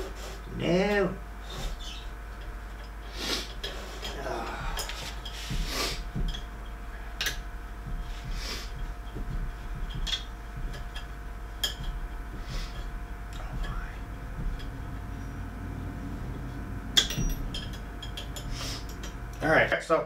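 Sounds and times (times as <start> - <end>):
steady low hum: 0.0 - 20.0
small parts clicking and tapping: 16.9 - 19.5.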